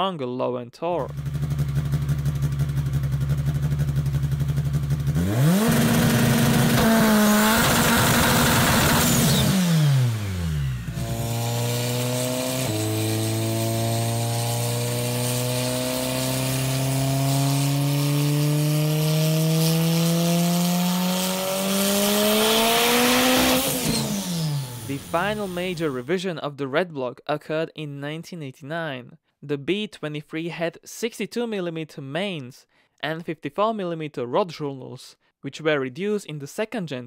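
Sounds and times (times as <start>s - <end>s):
race engine idling and revving: 1.1s - 26.0s.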